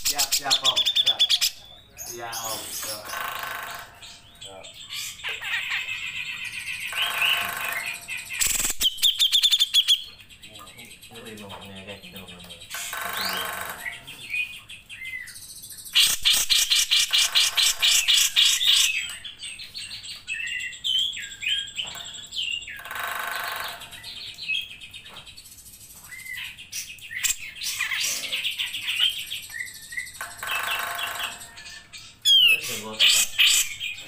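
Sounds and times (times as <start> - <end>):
bird singing whistles and chatter: 0.0 - 3.8, 26.0 - 34.0.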